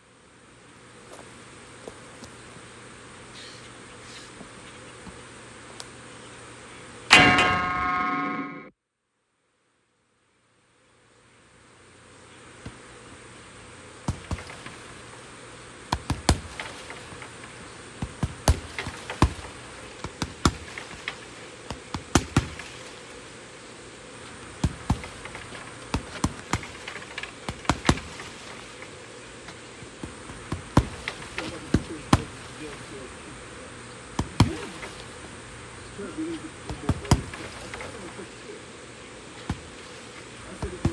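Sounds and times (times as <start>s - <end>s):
steady high buzz: 2.4s - 8.7s
punches thudding on heavy bag: 18.0s - 19.4s, 34.2s - 34.8s.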